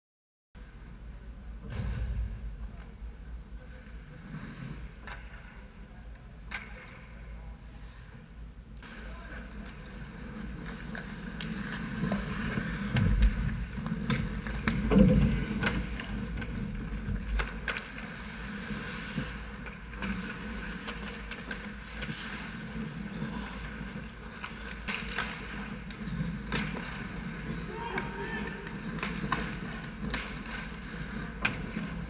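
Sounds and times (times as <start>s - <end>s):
steady low rumble: 0.6s - 4.2s
hockey sticks and puck clacking: 4.7s - 5.6s, 6.4s - 7.1s, 8.8s - 32.0s
skate blades scraping ice: 9.5s - 32.0s.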